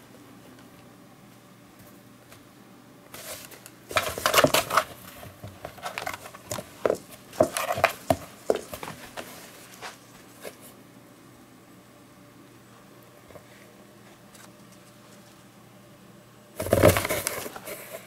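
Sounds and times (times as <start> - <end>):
kitten scratching cardboard: 3.2 - 10.6.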